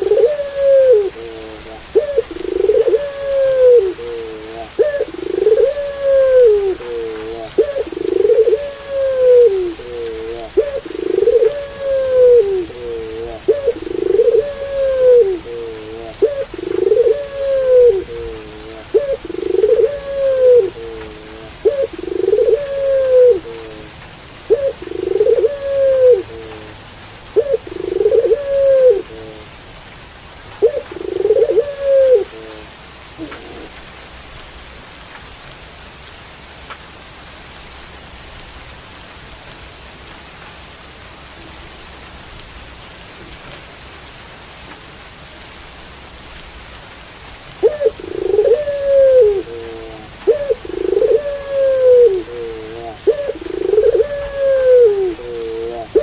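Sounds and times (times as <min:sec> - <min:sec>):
dove cooing: 0:00.0 - 0:29.5, 0:30.6 - 0:33.8, 0:47.5 - 0:56.0
steady rain hiss: 0:00.0 - 0:56.0.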